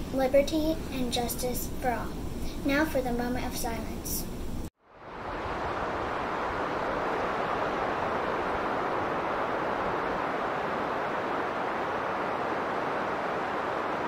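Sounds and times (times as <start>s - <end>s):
snowstorm wind hissing: 4.8s - 14.0s.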